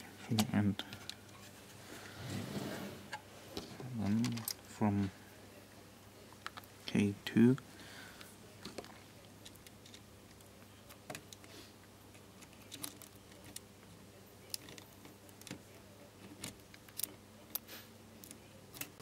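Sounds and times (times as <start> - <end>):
clicks and rustling of wires: 3.6 - 5.1, 8.6 - 11.5, 12.1 - 19.0.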